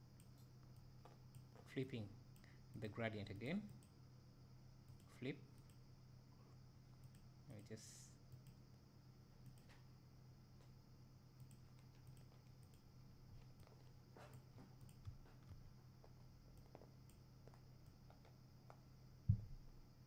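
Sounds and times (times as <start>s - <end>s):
low hum of room tone: 0.0s - 20.0s
computer mouse clicks: 4.9s - 5.8s, 7.0s - 7.7s, 8.3s - 8.6s, 9.4s - 9.8s, 11.4s - 15.6s.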